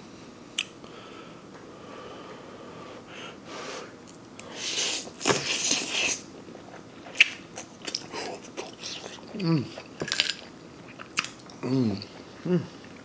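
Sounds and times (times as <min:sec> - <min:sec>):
mouth clicks and lip smacks: 0:00.6 - 0:00.8, 0:07.1 - 0:09.5
wet chewing: 0:04.4 - 0:13.0
noodle slurp: 0:04.5 - 0:07.4.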